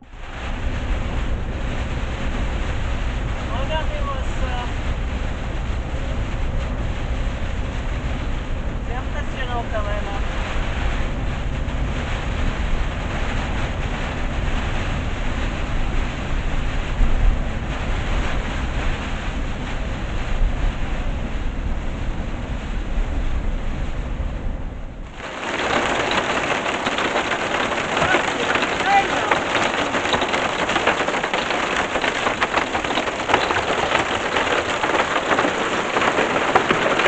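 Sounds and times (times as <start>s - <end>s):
heavy rain on windscreen: 0.0s - 37.0s
van engine drone: 0.0s - 37.0s.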